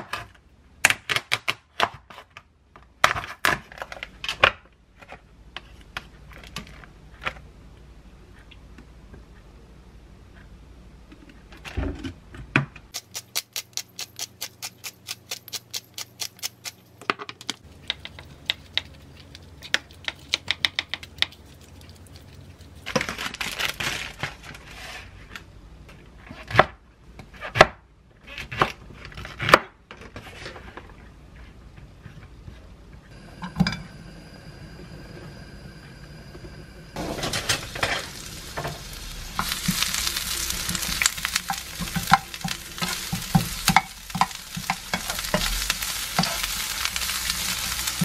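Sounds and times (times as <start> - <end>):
plastic packaging crinkling: 21.9 - 24.2
steady hum: 31.5 - 48.0.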